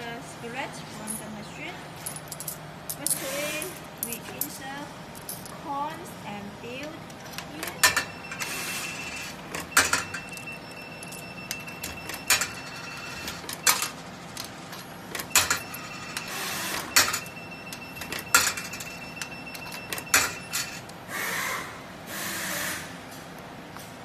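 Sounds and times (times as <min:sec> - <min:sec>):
coins clinking in coin mechanism: 0:00.9 - 0:05.6, 0:06.8 - 0:20.9.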